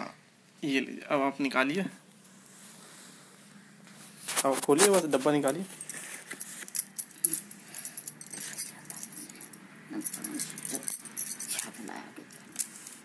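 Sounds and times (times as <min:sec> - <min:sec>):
paper crinkling: 0:04.2 - 0:06.8.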